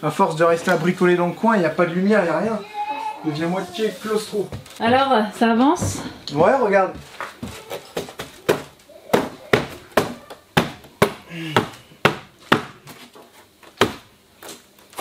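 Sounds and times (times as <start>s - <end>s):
sharp knocks on wood: 8.0s - 12.8s.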